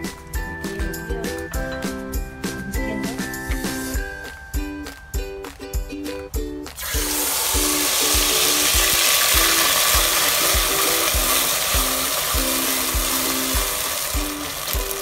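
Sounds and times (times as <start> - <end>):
background music with beat: 0.0 - 15.0
loud sizzling in a pan: 3.5 - 4.1, 6.8 - 15.0.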